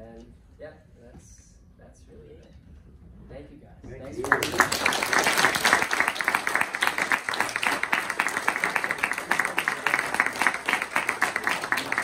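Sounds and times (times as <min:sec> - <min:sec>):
close hands clapping: 0:04.0 - 0:12.0
audience applauding: 0:04.1 - 0:12.0.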